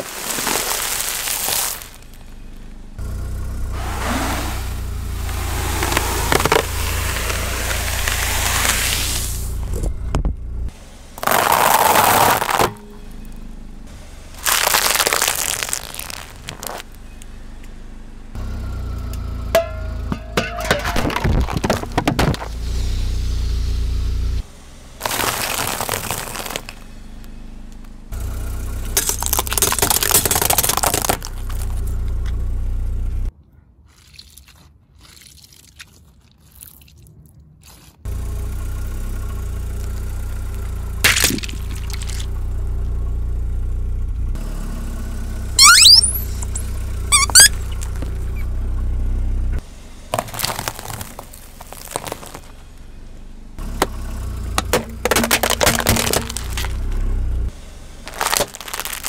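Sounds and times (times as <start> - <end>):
tyre crunching crackers: 0.0 - 2.2, 5.3 - 9.4, 11.2 - 12.8, 14.4 - 17.0, 25.0 - 26.9, 29.0 - 31.8, 41.0 - 42.3, 50.1 - 52.7, 54.6 - 57.0, 58.0 - 59.0
car engine hum: 0.0 - 33.3, 38.0 - 59.0
rubber toy squeaks: 45.6 - 48.5.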